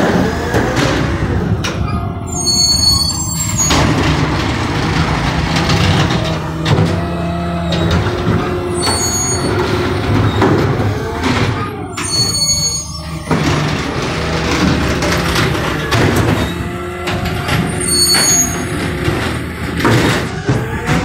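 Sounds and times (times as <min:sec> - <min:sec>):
garbage truck engine and hydraulics: 0:00.0 - 0:21.0
short high-pitched squeals: 0:01.9 - 0:04.2, 0:08.8 - 0:10.4, 0:11.7 - 0:13.6, 0:17.8 - 0:18.8.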